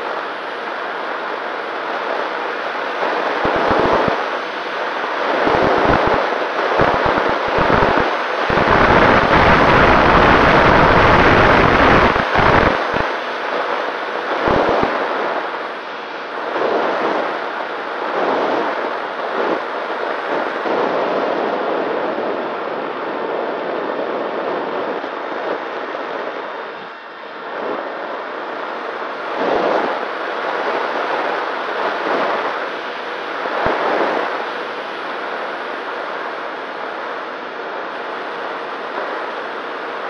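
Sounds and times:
wind rushing over microphone: 0:03.0 - 0:04.4, 0:05.2 - 0:35.6.

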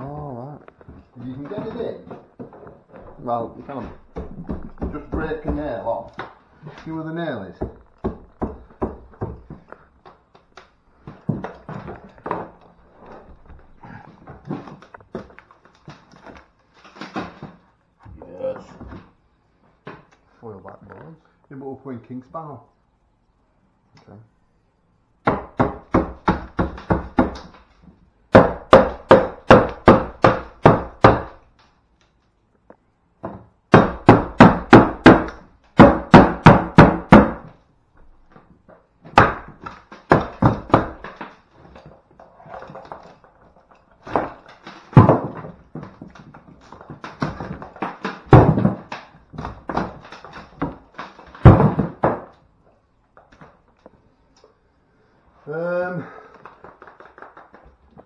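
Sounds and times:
hammer driving nails into wood: 0:28.3 - 0:31.4, 0:33.2 - 0:37.6, 0:39.1 - 0:41.4, 0:44.0 - 0:52.4.

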